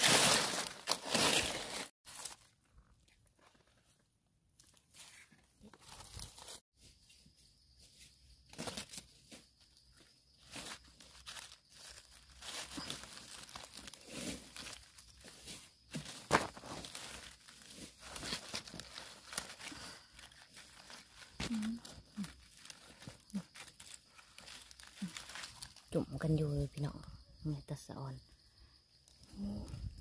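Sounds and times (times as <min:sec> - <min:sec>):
dry leaves crackling and rustling: 0:00.0 - 0:02.6, 0:05.8 - 0:06.6, 0:08.5 - 0:26.0.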